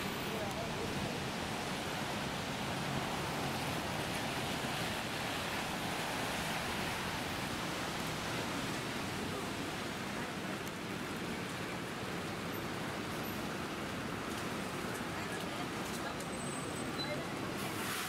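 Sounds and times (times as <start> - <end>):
rain hissing on wet street: 0.0 - 18.0.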